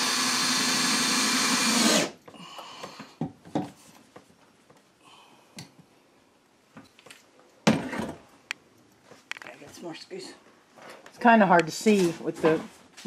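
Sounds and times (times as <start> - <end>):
cordless drill running into wood: 0.0 - 2.2.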